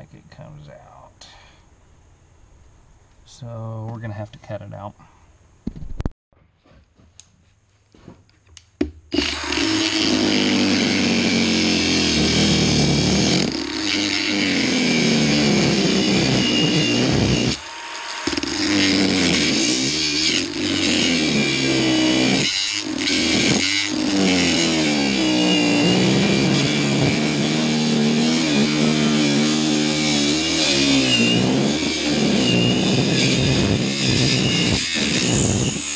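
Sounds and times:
angle grinder cutting metal: 0:09.1 - 0:35.9.

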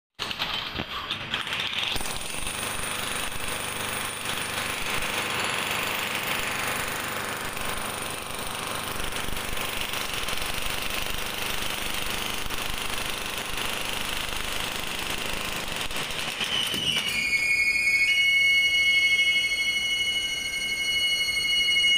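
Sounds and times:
demolition hammer chiselling concrete: 0:00.2 - 0:17.1.

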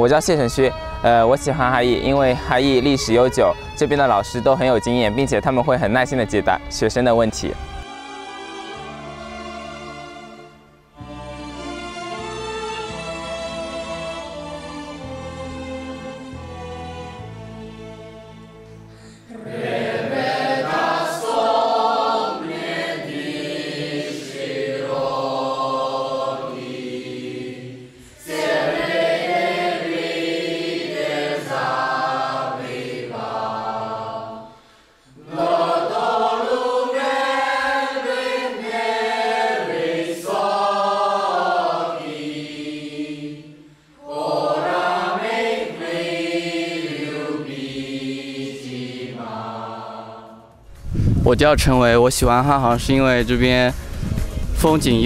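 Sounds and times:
mixed choir singing: 0:07.4 - 0:17.2, 0:19.2 - 0:50.6.

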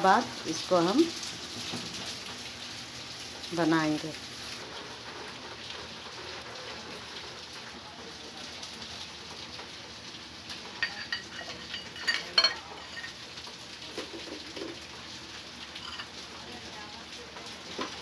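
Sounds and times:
spoon clinking on metal bowls: 0:10.8 - 0:13.2, 0:15.8 - 0:16.1.

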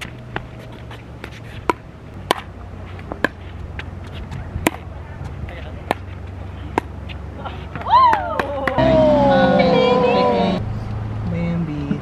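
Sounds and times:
ball bouncing: 0:00.0 - 0:08.8.

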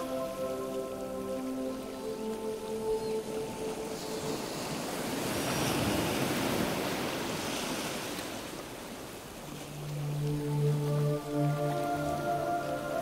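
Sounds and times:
background music: 0:00.0 - 0:05.3, 0:09.6 - 0:13.0
sea surf washing up beach: 0:00.0 - 0:13.0.

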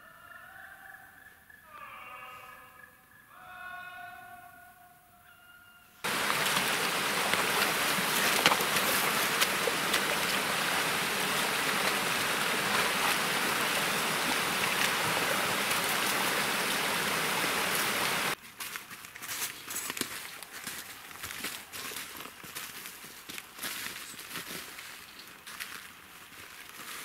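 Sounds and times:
stream water rushing: 0:06.0 - 0:18.4.

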